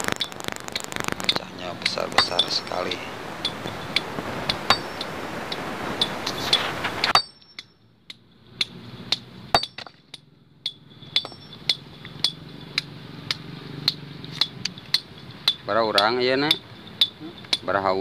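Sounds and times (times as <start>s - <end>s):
loud steady rushing noise: 0.0s - 7.8s, 10.8s - 18.0s
hammer striking chisel on stone: 1.8s - 2.6s, 3.4s - 5.1s, 6.0s - 7.7s, 8.6s - 17.8s.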